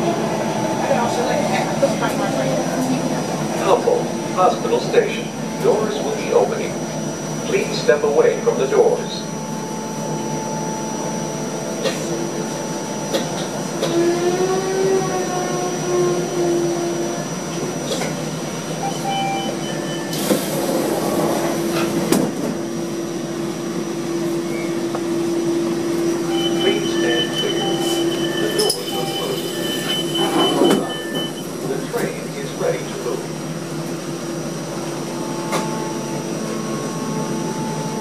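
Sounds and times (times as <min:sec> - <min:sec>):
train electrical hum with whine: 0:00.0 - 0:38.0
train doors opening: 0:17.5 - 0:22.7, 0:25.7 - 0:32.2
short high beeps: 0:26.3 - 0:31.5.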